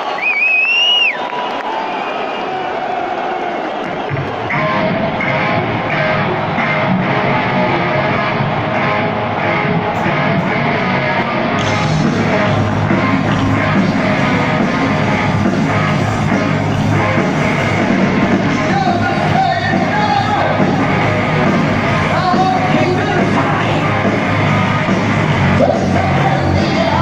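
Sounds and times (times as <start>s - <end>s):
heavy metal band playing live: 4.1s - 27.0s
person singing: 25.5s - 27.0s.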